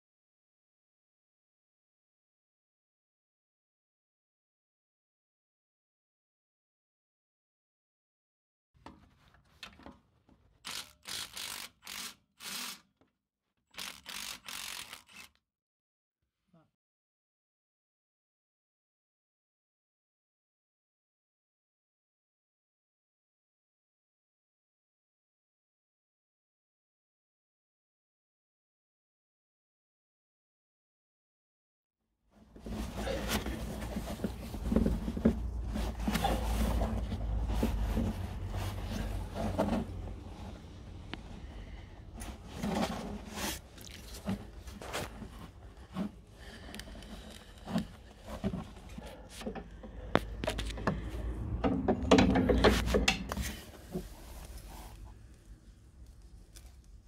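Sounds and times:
hands handling car parts: 0:32.6 - 0:51.1
knocks of plastic and metal parts: 0:49.5 - 0:53.4.

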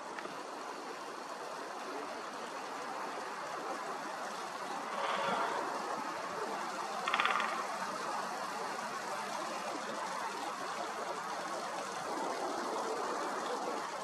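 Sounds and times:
steady background hiss: 0:00.0 - 0:14.0
woodpecker drumming: 0:07.0 - 0:08.0.

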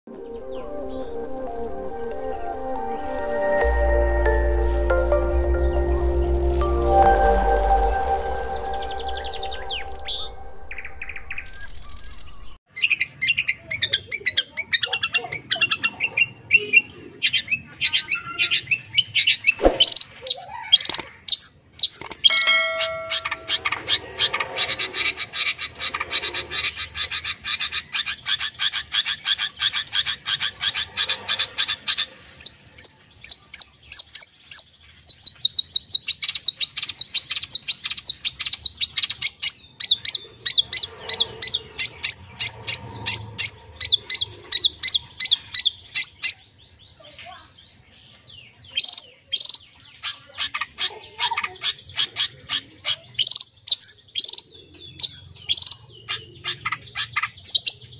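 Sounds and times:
bird singing high chirps: 0:00.1 - 0:12.6, 0:21.8 - 0:23.9.

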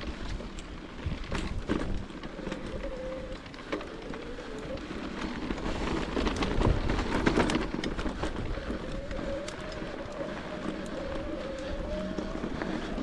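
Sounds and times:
electric motor whine: 0:08.6 - 0:13.0.

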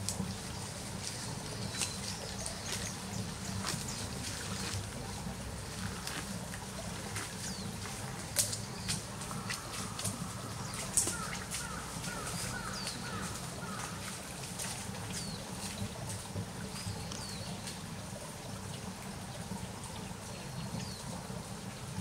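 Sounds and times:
branches being chewed: 0:01.0 - 0:14.0.

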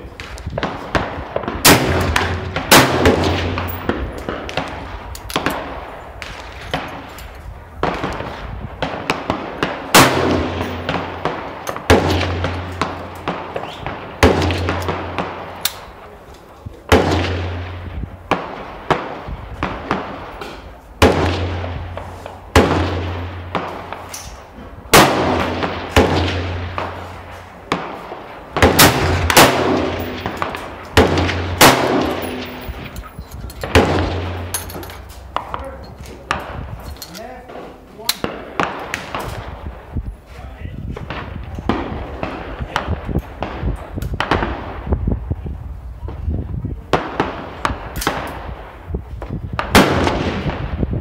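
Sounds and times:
gunshots with short echo: 0:00.6 - 0:07.1, 0:07.8 - 0:15.8, 0:24.9 - 0:36.8.

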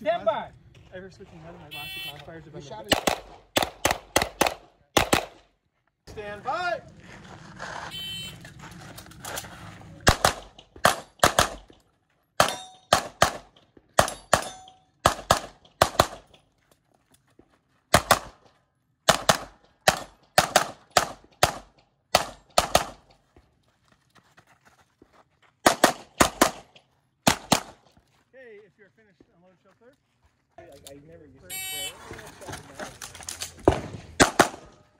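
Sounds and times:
pistol shots: 0:02.9 - 0:05.5, 0:10.0 - 0:11.8, 0:12.4 - 0:16.4, 0:17.9 - 0:18.4, 0:19.1 - 0:23.1, 0:25.6 - 0:27.9, 0:33.6 - 0:34.9.

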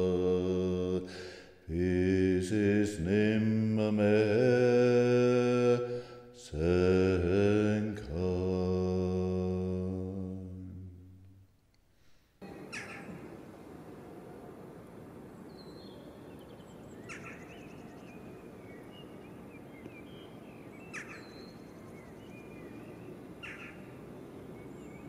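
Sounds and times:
birds chirping and warbling: 0:12.4 - 0:13.5, 0:15.3 - 0:25.0.

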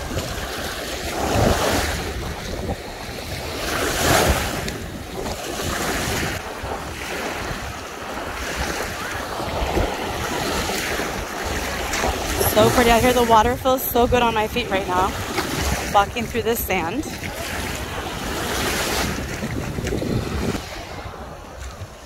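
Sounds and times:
lake waves washing on sandy shore: 0:00.0 - 0:22.0
wind buffeting microphone: 0:00.0 - 0:22.0.

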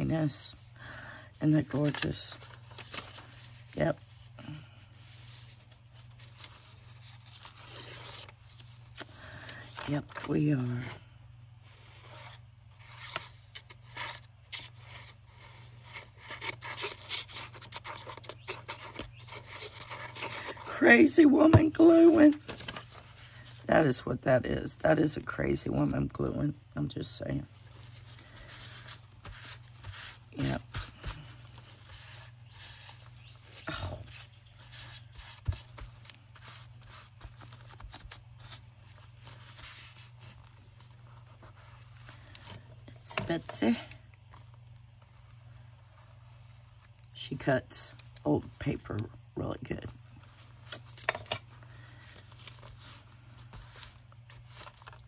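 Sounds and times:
paper scraping and rustling: 0:01.5 - 0:10.4, 0:11.7 - 0:23.7, 0:27.0 - 0:43.6, 0:50.0 - 0:55.0.

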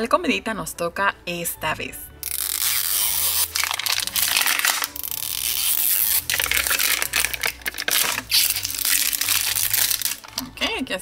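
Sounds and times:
plastic wrapper crinkling: 0:02.2 - 0:10.8.

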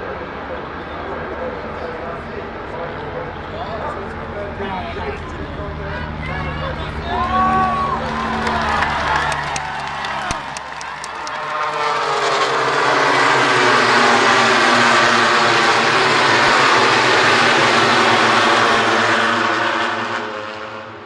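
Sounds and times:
racing motorcycles passing at high revs: 0:11.2 - 0:21.0.

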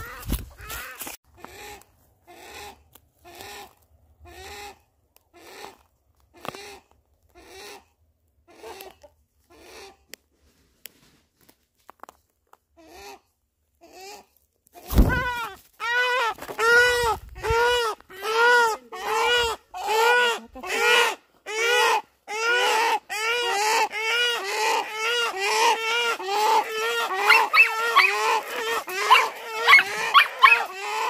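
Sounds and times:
animal calling: 0:15.0 - 0:31.0.

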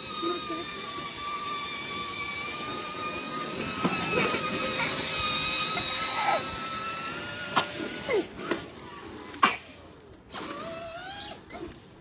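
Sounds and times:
toy car motor whine: 0:00.0 - 0:08.3, 0:10.3 - 0:11.6
wheels rolling on concrete: 0:00.0 - 0:12.0.

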